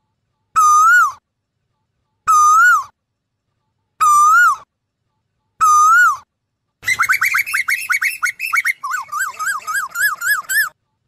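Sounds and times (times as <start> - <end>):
koel calling: 6.8 - 10.7.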